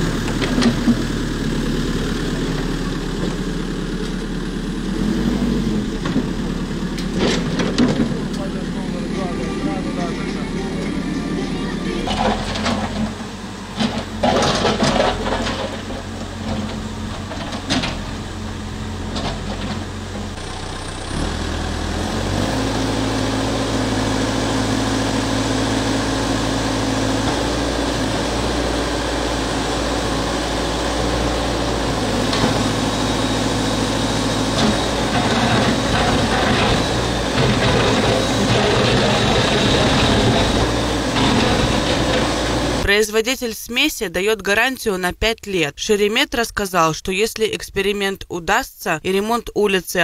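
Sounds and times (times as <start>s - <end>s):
diesel engine idling: 0.0s - 42.9s
knocks and clatter: 7.0s - 8.5s, 12.0s - 18.2s, 34.5s - 42.6s.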